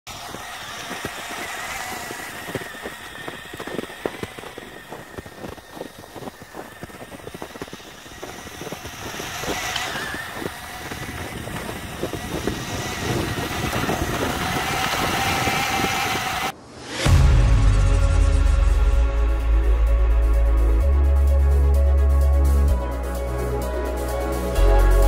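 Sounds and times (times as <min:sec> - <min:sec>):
small electric motor whining: 0:00.1 - 0:16.6.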